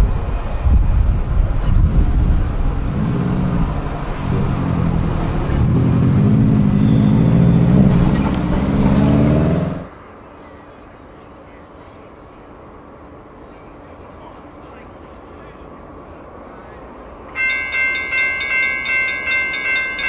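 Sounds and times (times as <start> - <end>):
vehicle engines accelerating: 0.0 - 9.9.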